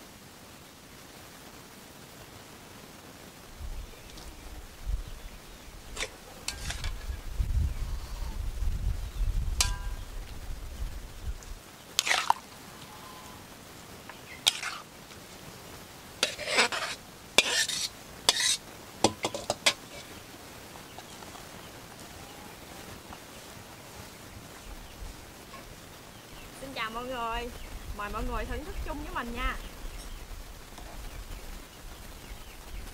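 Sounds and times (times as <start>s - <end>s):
metal ladle scraping a wok: 6.0s - 7.1s, 9.6s - 10.0s, 12.0s - 12.4s, 14.4s - 14.9s, 16.2s - 20.2s.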